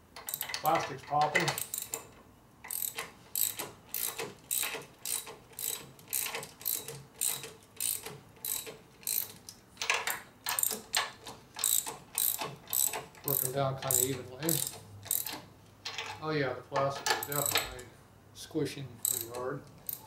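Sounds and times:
ratchet wrench clicking: 0.2s - 16.1s, 17.1s - 17.8s, 19.0s - 20.0s.

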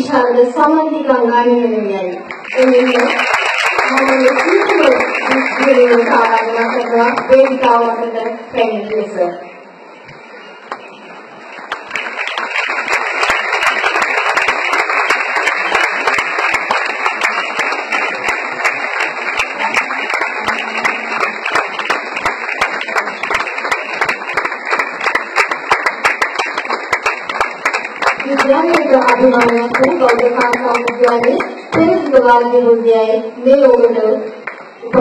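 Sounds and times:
audience applauding: 2.3s - 7.9s, 11.4s - 31.8s.

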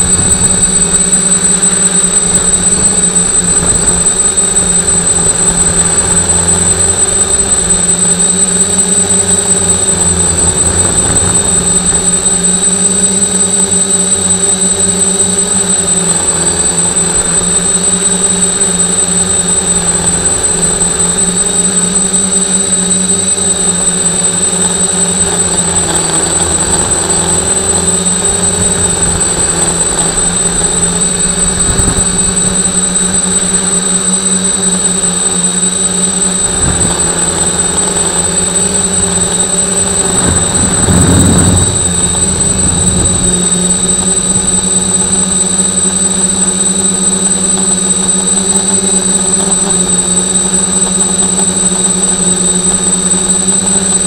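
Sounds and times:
drone motors humming: 0.0s - 54.0s
rushing swell: 2.0s - 13.8s, 36.4s - 46.9s.

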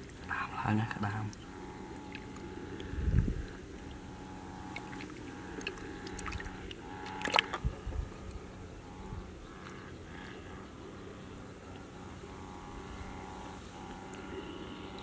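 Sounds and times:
wet squishing and gurgling mud: 0.0s - 7.8s.

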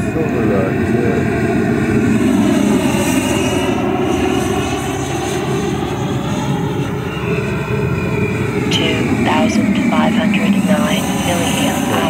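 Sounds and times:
model jet fan whine: 0.0s - 12.0s.

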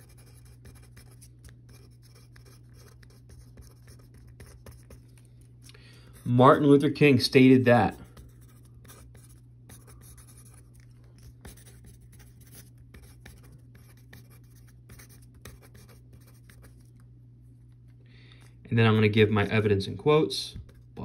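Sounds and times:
pen scratching on paper: 0.0s - 5.1s, 8.0s - 17.0s
steady low hum: 0.0s - 21.0s.

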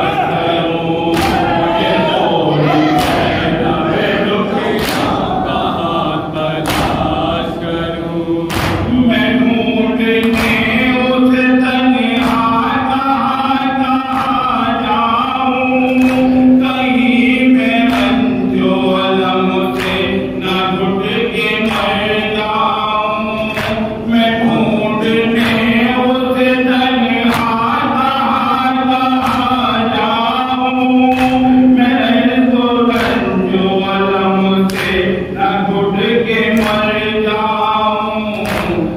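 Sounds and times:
men chanting in unison: 0.0s - 38.9s
person reciting into a microphone: 0.0s - 38.9s
hands slapping chests: 1.1s - 1.7s, 4.8s - 5.3s, 6.6s - 7.2s, 8.5s - 8.9s, 38.4s - 38.9s.

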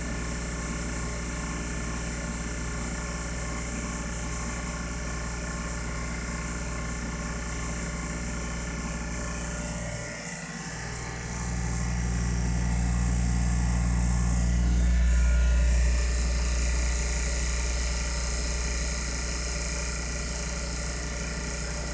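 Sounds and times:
vacuum pump humming with hiss: 0.0s - 21.9s.

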